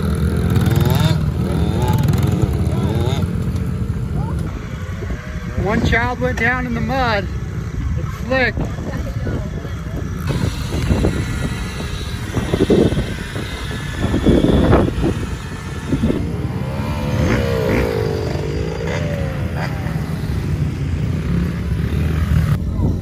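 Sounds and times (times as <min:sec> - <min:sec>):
dirt bike engines running: 0:00.0 - 0:23.0.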